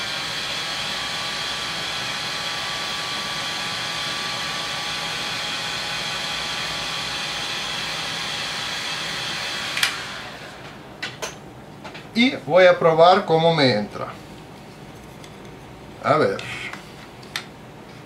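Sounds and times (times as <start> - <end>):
heat gun blowing air with whine: 0.0 - 10.9.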